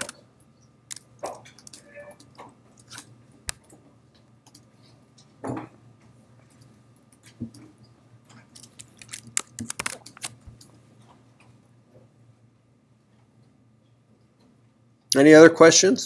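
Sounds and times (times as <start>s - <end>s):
small clicks and rattles: 6.0s - 11.6s.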